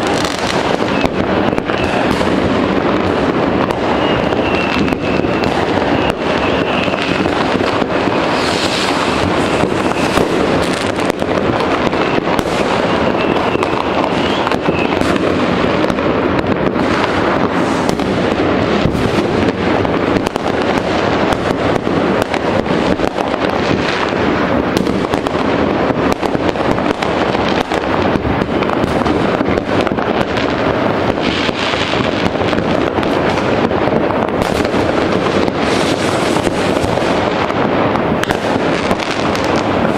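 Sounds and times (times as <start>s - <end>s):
firecracker cracks and rocket bangs: 0.0s - 39.9s
thin high whistle: 3.9s - 7.2s, 8.6s - 10.2s, 12.8s - 15.0s.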